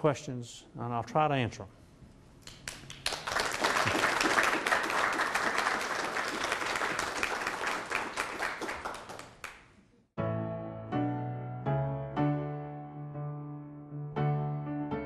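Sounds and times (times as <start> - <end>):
audience applauding: 2.4 - 9.8.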